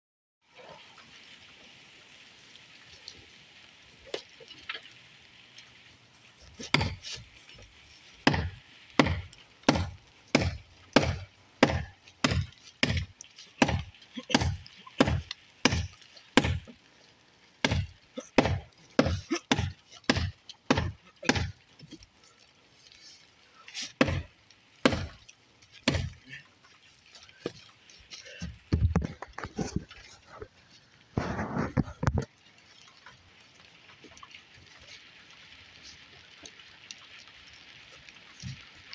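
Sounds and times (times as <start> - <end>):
axe chopping into wooden post: 6.6 - 7.1, 8.2 - 16.7, 17.6 - 21.6, 23.9 - 25.2, 25.8 - 26.2.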